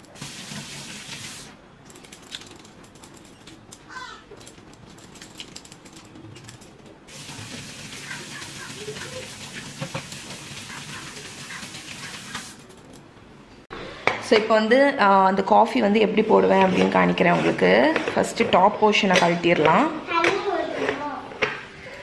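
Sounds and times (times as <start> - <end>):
tap water running into sink: 0.1 - 1.5, 7.1 - 12.6.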